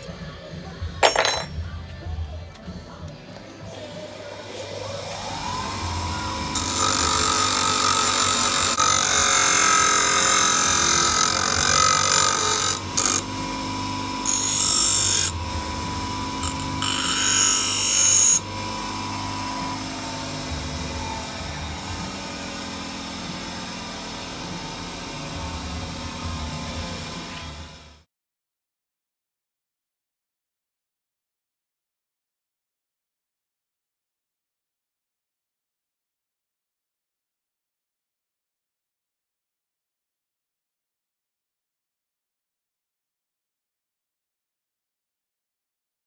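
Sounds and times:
metal grinding on stone: 1.0s - 1.6s
bench grinder motor whining: 4.4s - 28.0s.

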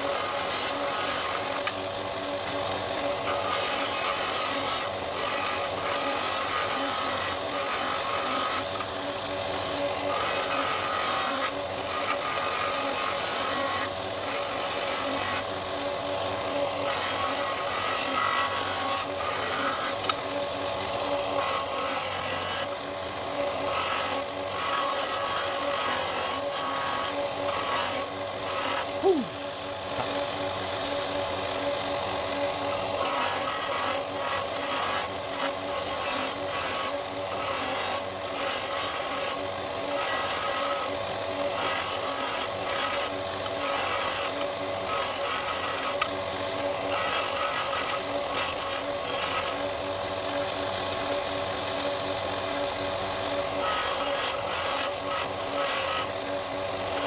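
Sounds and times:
disc sander running: 0.0s - 57.0s
scratchy sanding of wood: 3.1s - 8.8s, 9.9s - 15.5s, 16.5s - 20.1s, 21.3s - 22.7s, 23.6s - 29.0s, 33.0s - 46.1s, 46.7s - 49.6s, 53.5s - 56.1s.

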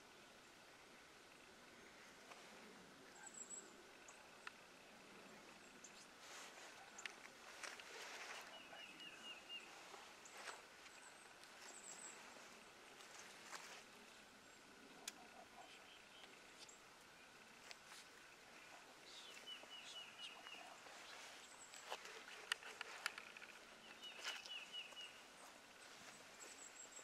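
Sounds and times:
faint rustles: 0.7s - 27.0s
faint clicks: 4.0s - 4.7s, 21.7s - 25.1s
high bird chirps and trills: 14.4s - 27.0s.

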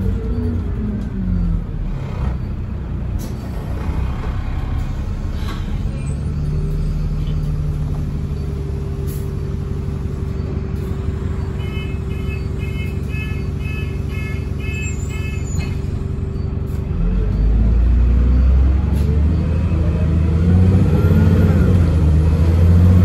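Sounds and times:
bus diesel engine humming: 0.0s - 23.0s.

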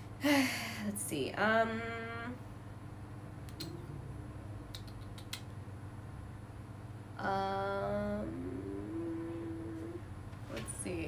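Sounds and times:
low steady hum: 0.0s - 11.0s
woman humming a held note: 7.2s - 10.1s.

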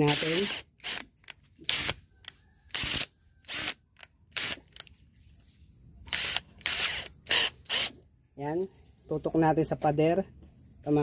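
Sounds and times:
drill chuck ratcheting: 0.0s - 4.9s, 6.1s - 8.0s.

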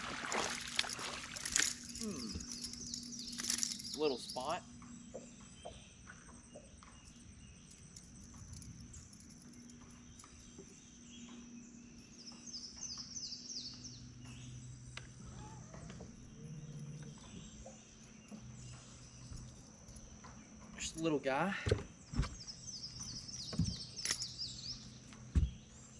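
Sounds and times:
low steady hum: 0.0s - 25.9s
high-pitched insect drone: 0.6s - 4.6s
bird chirping: 1.8s - 21.3s, 21.9s - 25.9s.

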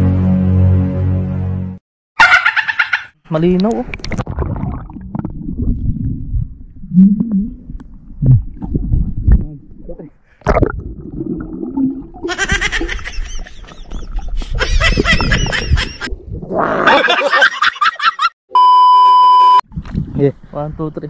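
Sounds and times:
low water rumble: 3.6s - 17.0s.

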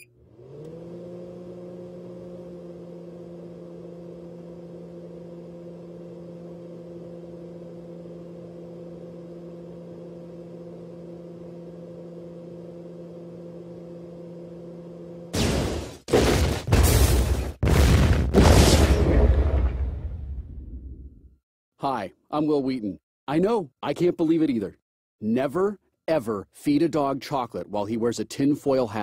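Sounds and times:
microwave oven humming: 0.0s - 16.0s.

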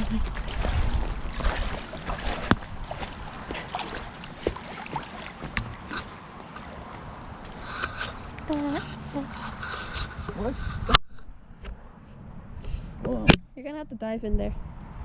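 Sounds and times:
wind rumble on microphone: 0.0s - 4.5s, 8.0s - 15.0s
small splashes: 0.0s - 8.8s
lake water sloshing and lapping: 0.0s - 10.8s.

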